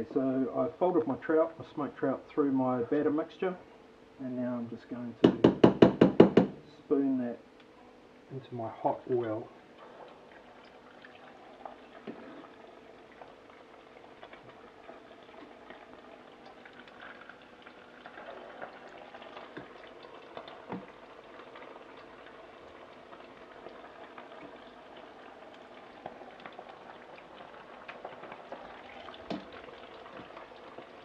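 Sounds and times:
batter deep-frying in oil: 0:08.4 - 0:31.0.

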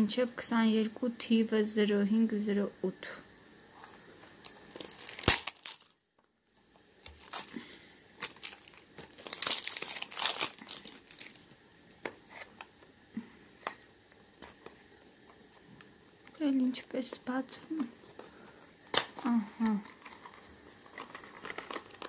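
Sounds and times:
cellophane crinkling and tearing: 0:03.8 - 0:12.7, 0:18.8 - 0:22.0.

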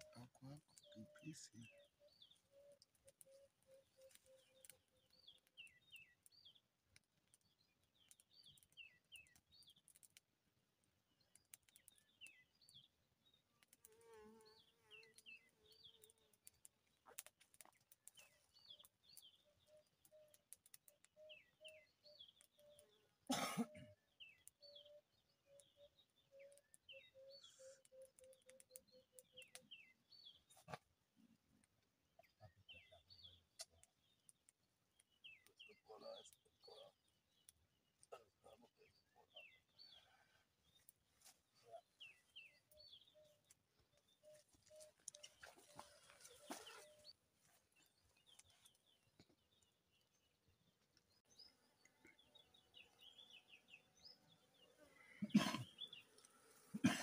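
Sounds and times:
small birds chirping: 0:00.0 - 0:57.0
person coughing: 0:23.3 - 0:23.9, 0:55.2 - 0:55.7, 0:56.8 - 0:57.0.

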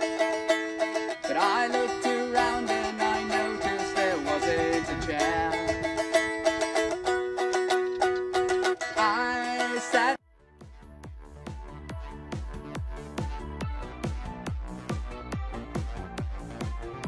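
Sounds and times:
plucked stringed instrument: 0:00.0 - 0:10.2
person singing wavering line: 0:00.9 - 0:05.9.

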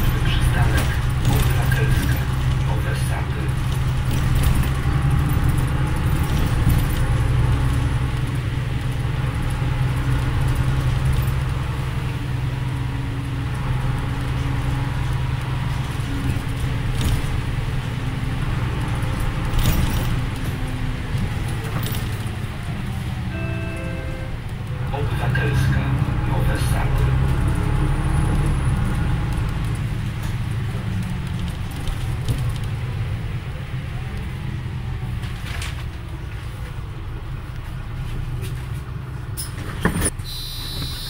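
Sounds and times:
bus fittings rattling: 0:00.0 - 0:12.1, 0:15.0 - 0:23.2, 0:28.3 - 0:33.5, 0:38.4 - 0:40.2
bus engine droning: 0:00.0 - 0:41.0.

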